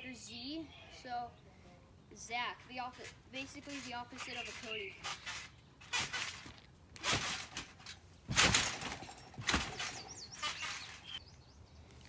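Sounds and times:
trampoline thumps and springs: 2.9 - 11.2.

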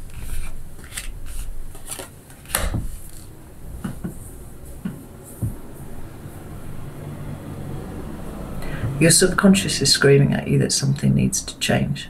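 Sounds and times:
cards tapping and rustling: 0.0 - 4.2.

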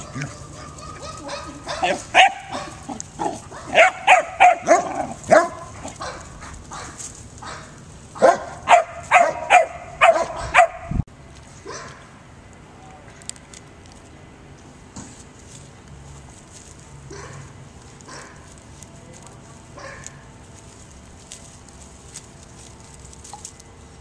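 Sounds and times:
dog barking and yipping: 0.0 - 11.0, 17.1 - 17.5, 19.8 - 20.1.

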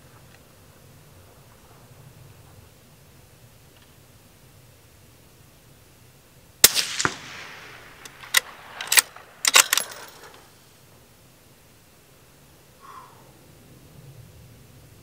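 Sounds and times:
rifle shot with echo: 6.6 - 10.6
sharp clacks: 6.9 - 10.5.

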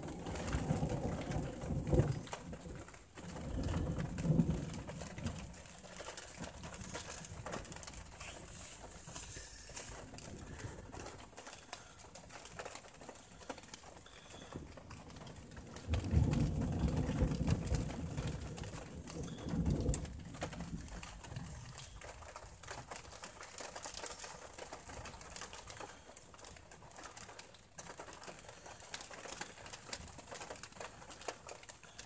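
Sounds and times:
thunder rumbling: 0.0 - 12.0, 14.5 - 22.2
rain pattering on car: 0.0 - 32.0.

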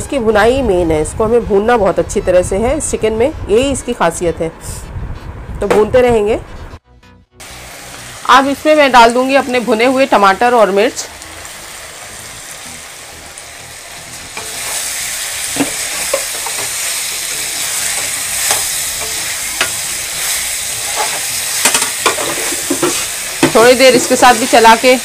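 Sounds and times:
food sizzling in oil: 7.4 - 25.0
metal spoon scraping a pan: 14.1 - 24.2.

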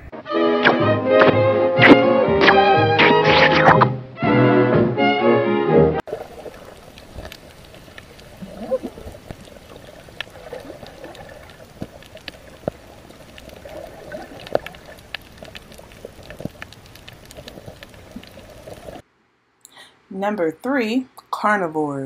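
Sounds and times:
sharp clicks and crackles: 6.1 - 19.0
underwater watery rush: 6.1 - 19.0.

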